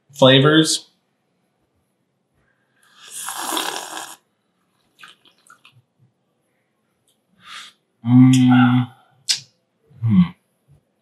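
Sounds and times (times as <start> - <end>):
loud coffee slurp: 3.0 - 4.2.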